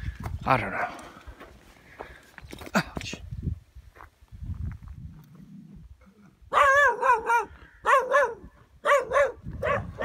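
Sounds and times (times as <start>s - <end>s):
dog barking: 6.5s - 10.0s.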